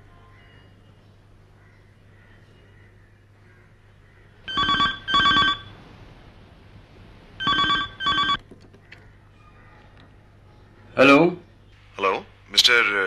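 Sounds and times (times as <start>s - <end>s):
telephone ringing: 4.5s - 5.8s, 7.4s - 8.4s.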